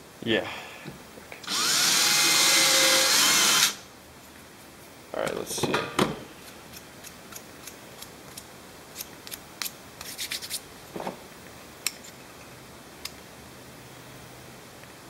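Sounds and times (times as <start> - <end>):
scraping rubs: 9.2 - 11.2.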